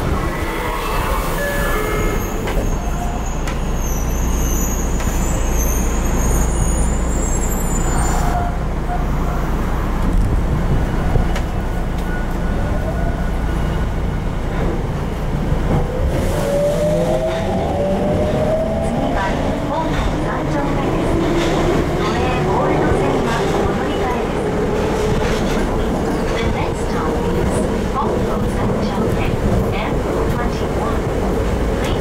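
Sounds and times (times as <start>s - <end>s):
subway train rumble: 0.0s - 32.0s.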